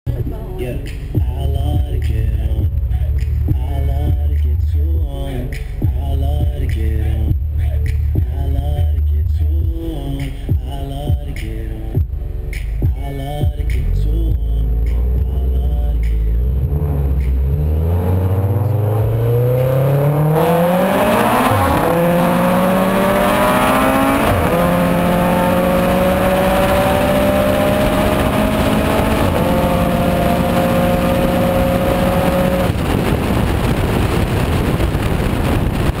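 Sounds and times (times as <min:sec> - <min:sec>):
car engine accelerating through gears: 0:12.0 - 0:36.0
wind and road rush: 0:14.7 - 0:36.0.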